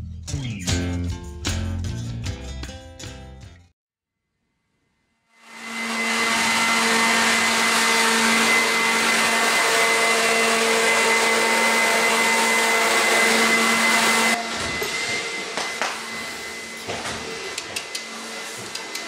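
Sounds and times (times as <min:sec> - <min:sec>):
blower rush of air: 0:05.4 - 0:19.0.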